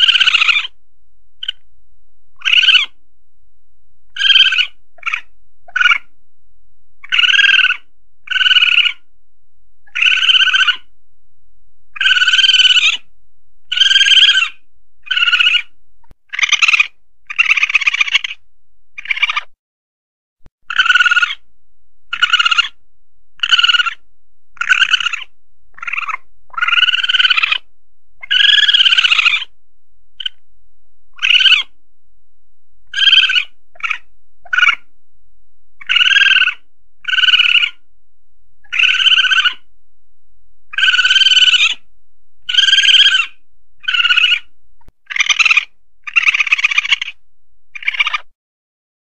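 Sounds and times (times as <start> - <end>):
civet high-pitched cries: 0.0 - 0.8, 1.4 - 1.6, 2.4 - 3.0, 4.1 - 6.2, 7.0 - 9.1, 9.8 - 10.9, 11.9 - 18.4, 19.0 - 19.6, 20.6 - 21.5, 22.1 - 22.8, 23.4 - 29.6, 30.2 - 30.4, 31.1 - 31.8, 32.8 - 34.9, 35.8 - 37.9, 38.6 - 39.7, 40.7 - 48.3.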